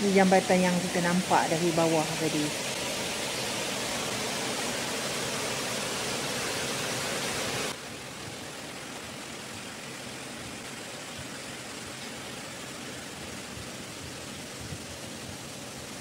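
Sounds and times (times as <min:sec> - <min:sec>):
water rushing over rocks: 0:00.7 - 0:14.5.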